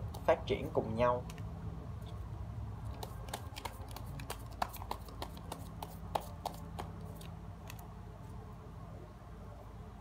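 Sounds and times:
faint low hum: 0:00.0 - 0:10.0
cards clicking and snapping: 0:02.9 - 0:07.9.

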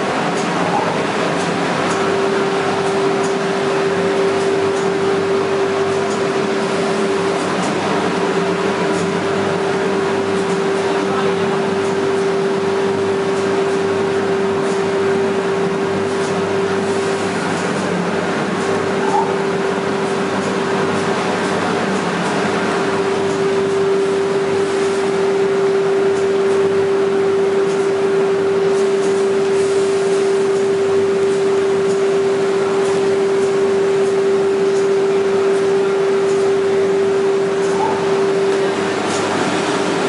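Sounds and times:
constant machine tone: 0:00.0 - 0:40.0
machine blowers and conveyor drone: 0:00.0 - 0:40.0.

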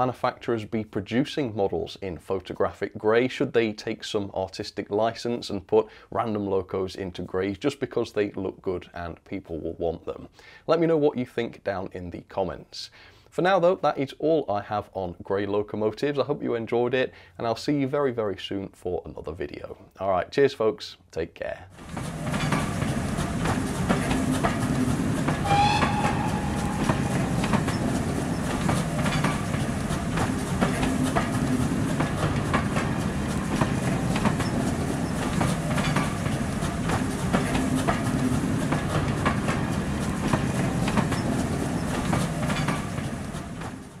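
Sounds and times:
train wheels clicking on rails: 0:21.8 - 0:44.0
rising train whistle: 0:25.3 - 0:28.4.

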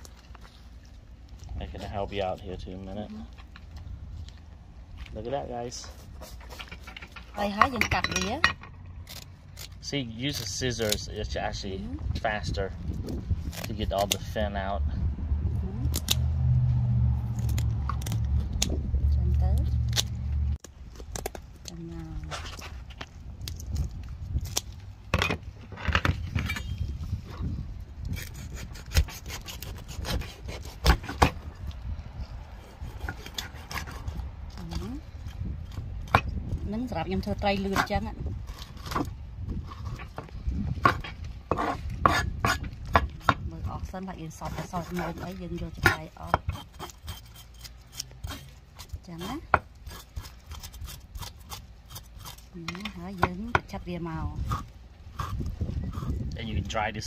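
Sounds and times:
cleaver scraping fish scales: 0:05.2 - 0:08.4, 0:26.1 - 0:35.8, 0:37.2 - 0:53.2
knife sawing through fish: 0:05.8 - 0:06.9, 0:28.1 - 0:31.2, 0:32.5 - 0:34.2, 0:46.5 - 0:52.4.

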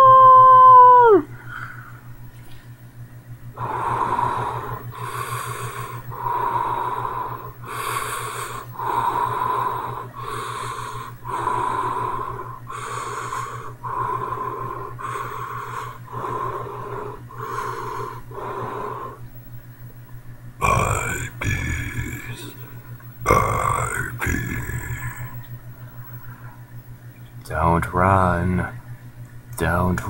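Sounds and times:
steady low hum: 0:00.0 - 0:30.0
person breathing heavily: 0:01.3 - 0:02.2, 0:03.6 - 0:19.4, 0:20.6 - 0:26.7.

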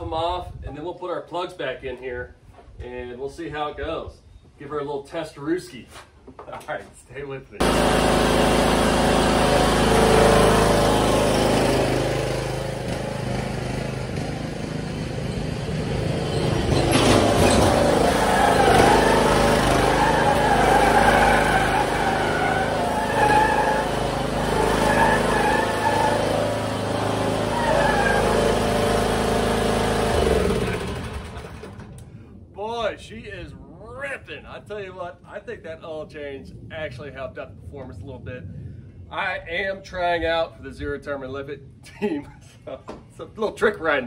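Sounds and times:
mower engine running: 0:07.6 - 0:32.0.

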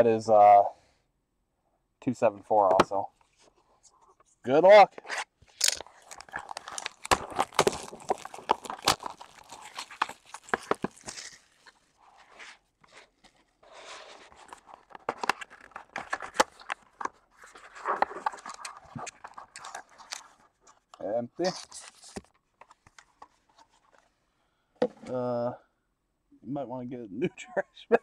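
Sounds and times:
cardboard and wrapping rustling: 0:04.9 - 0:24.1.

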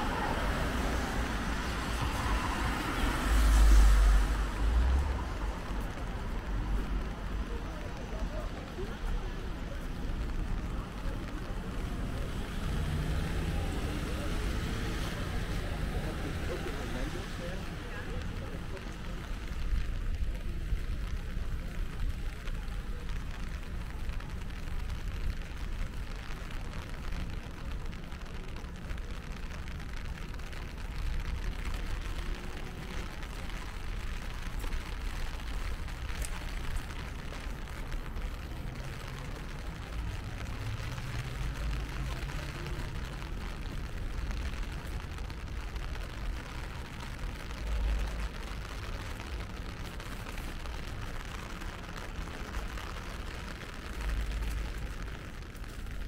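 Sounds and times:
low rumble of traffic: 0:00.0 - 0:56.0
rain hissing: 0:00.0 - 0:56.0
vehicle engine passing: 0:12.2 - 0:17.4.

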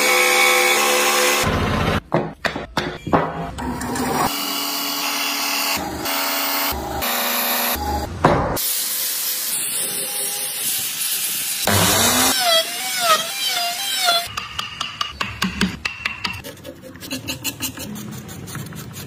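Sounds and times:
router cutting wood: 0:00.0 - 0:02.0, 0:08.7 - 0:14.3.

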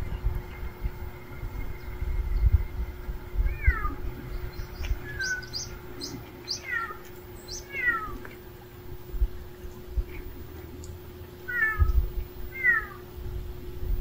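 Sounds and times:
cat meowing: 0:03.4 - 0:04.0, 0:06.6 - 0:07.0, 0:07.6 - 0:08.2, 0:11.5 - 0:13.0.

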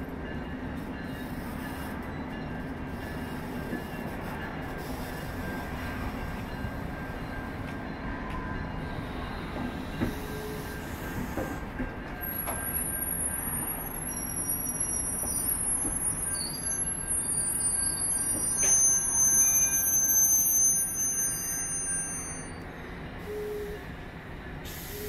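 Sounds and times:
train wheels rumbling on track: 0:00.0 - 0:25.0
high-pitched wheel squeal: 0:12.3 - 0:22.6.

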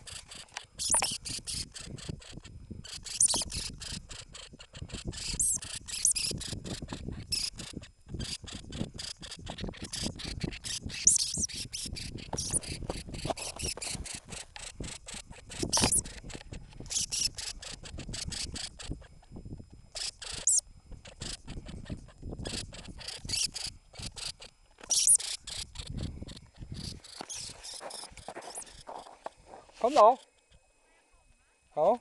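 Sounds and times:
lemming squeaking: 0:00.0 - 0:30.6.

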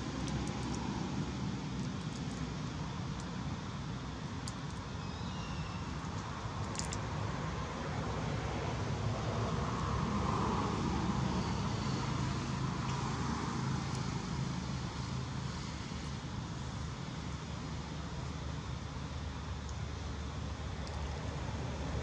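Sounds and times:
vehicle engine rumbling: 0:00.0 - 0:05.0.

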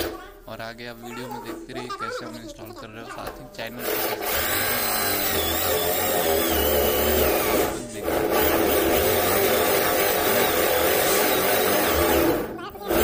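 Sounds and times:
electric drill cutting wood: 0:03.8 - 0:13.0.

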